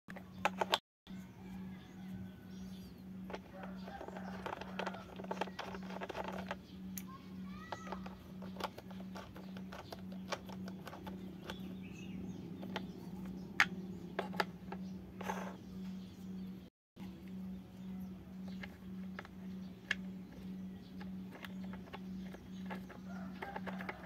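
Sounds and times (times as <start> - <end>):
steady low hum: 1.1 - 24.0
plastic toy parts clicking: 3.3 - 7.1, 7.7 - 11.7, 18.5 - 24.0.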